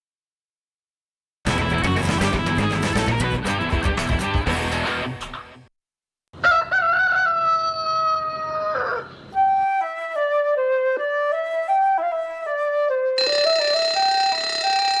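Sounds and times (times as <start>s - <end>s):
flute-like wind instrument melody: 9.4s - 15.0s.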